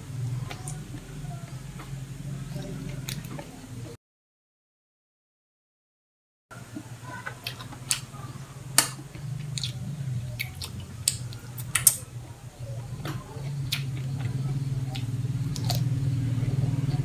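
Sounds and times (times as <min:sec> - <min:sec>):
steady low hum: 0:00.0 - 0:04.0, 0:06.5 - 0:17.0
wet chewing and lip smacks: 0:09.2 - 0:12.1, 0:13.1 - 0:16.0
sharp crisp clicks: 0:10.4 - 0:12.1
crunchy cucumber bite: 0:14.9 - 0:15.9.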